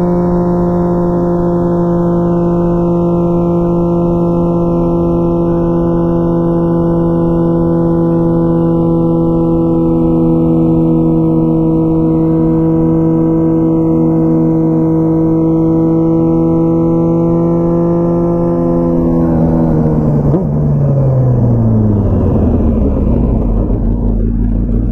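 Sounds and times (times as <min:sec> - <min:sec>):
motorcycle engine cruising: 0:00.0 - 0:24.9.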